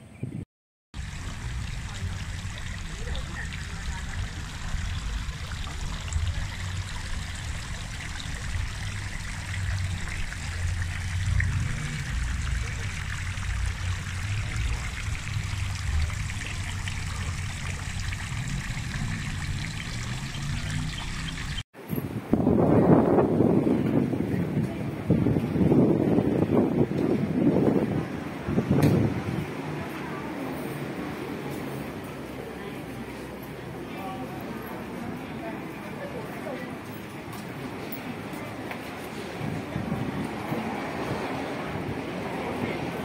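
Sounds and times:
low rumble: 0:01.0 - 0:21.5
fountain water trickling: 0:01.0 - 0:21.6, 0:23.7 - 0:43.0.

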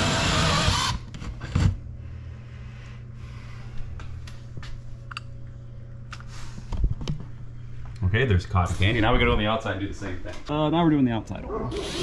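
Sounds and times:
power drill with hole saw: 0:00.0 - 0:01.7, 0:11.7 - 0:12.0
low steady hum: 0:00.1 - 0:11.7.

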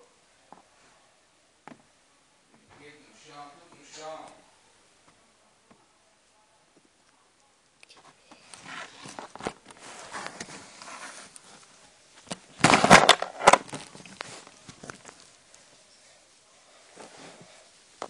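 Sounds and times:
camera handling rustling: 0:12.3 - 0:15.1.

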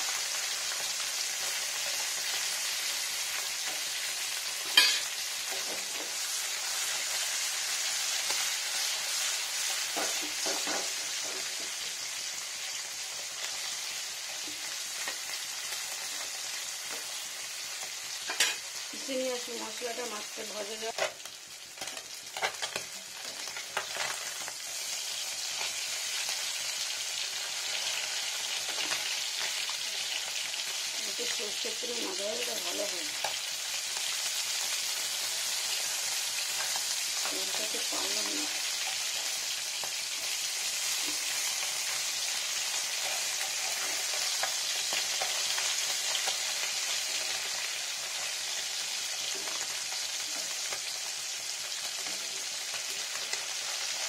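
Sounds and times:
fish sizzling in a pan: 0:00.0 - 0:54.0.

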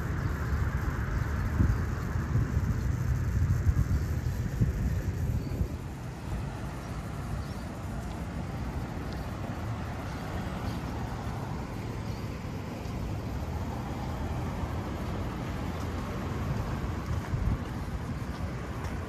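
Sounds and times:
city street traffic hum: 0:00.0 - 0:19.0.

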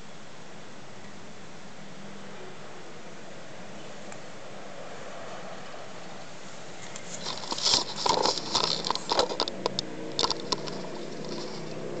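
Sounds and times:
rustling and scraping from handling: 0:06.5 - 0:12.0.

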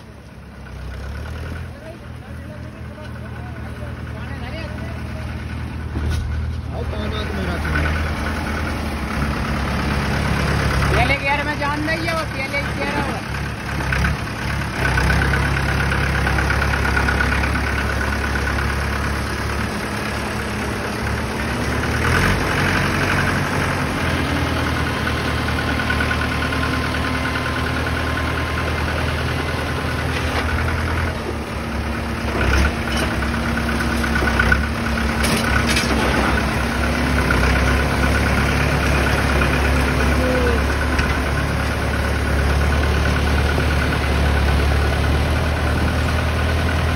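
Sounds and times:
tractor engines under load: 0:00.0 - 0:46.9.

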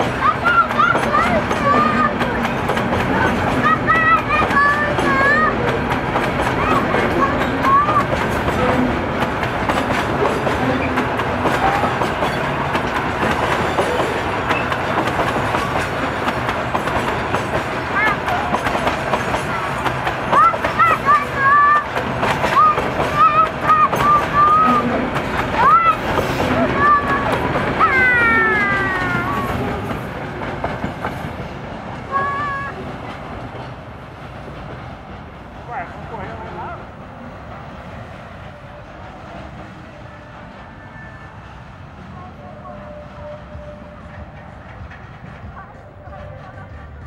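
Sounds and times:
wheels clacking over rail joints: 0:00.0 - 0:40.9, 0:42.1 - 0:47.0
freight train rumbling past: 0:00.0 - 0:47.0
train wheels squealing: 0:13.7 - 0:15.0.

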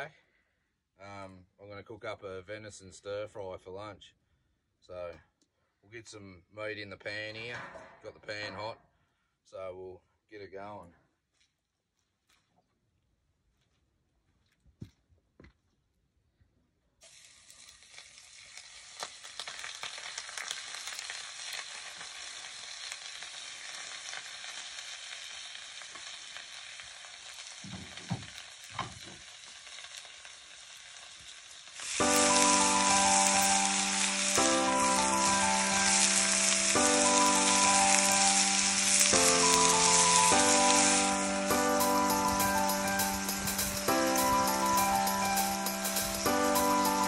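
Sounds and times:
meat sizzling in a frying pan: 0:17.0 - 0:47.0
music: 0:32.0 - 0:47.0.

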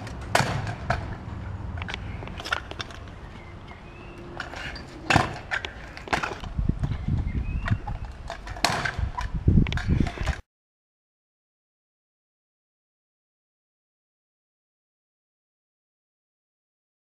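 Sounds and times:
scooter deck clacking on ground: 0:00.0 - 0:10.4
scooter wheels rolling on concrete: 0:00.0 - 0:10.4.

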